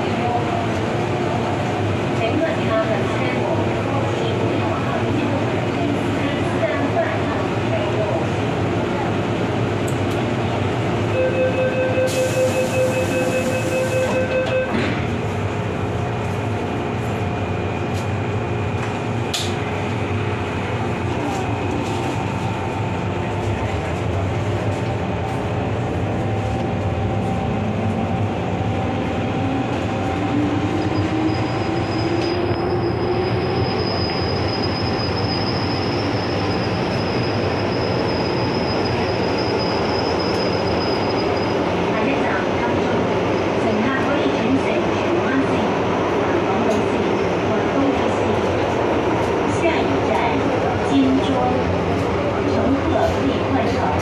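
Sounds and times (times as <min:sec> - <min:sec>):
rumble of train wheels on rail: 0:00.0 - 0:11.2, 0:11.9 - 0:54.0
high wheel squeal: 0:30.8 - 0:41.6.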